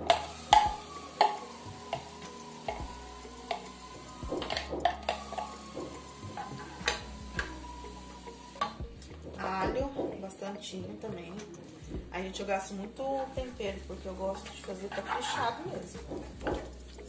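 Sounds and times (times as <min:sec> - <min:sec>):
onion sizzling in oil: 0:00.0 - 0:09.6.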